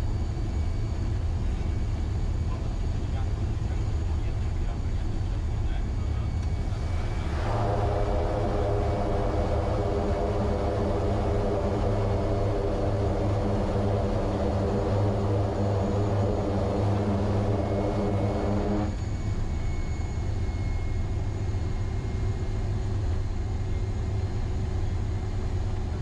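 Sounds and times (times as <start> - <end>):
propeller engine drone: 0.0 - 26.0
deep rumble: 5.7 - 19.5.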